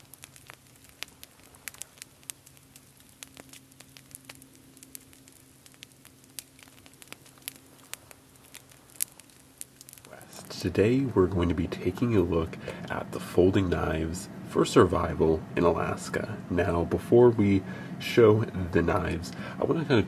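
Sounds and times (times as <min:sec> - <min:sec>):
sharp fire pops: 0:00.0 - 0:13.3
campfire crackling: 0:00.0 - 0:20.0
faint hiss: 0:00.0 - 0:20.0.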